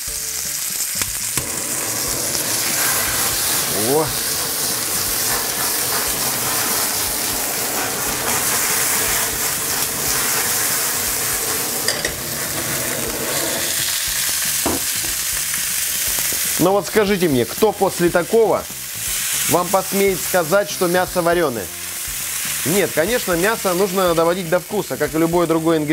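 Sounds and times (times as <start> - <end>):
meat sizzling in a frying pan: 0.0 - 25.9
blowtorch hissing: 0.7 - 16.7.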